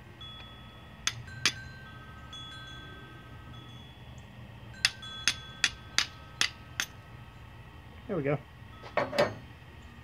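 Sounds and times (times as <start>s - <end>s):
short metallic ring: 8.8s - 9.5s.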